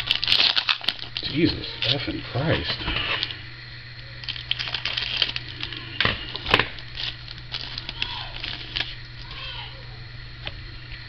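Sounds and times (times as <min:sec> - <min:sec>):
foil wrapper crinkling: 0:00.0 - 0:03.4, 0:04.2 - 0:09.4
foil wrapper ripping: 0:00.0 - 0:03.4, 0:04.2 - 0:09.2.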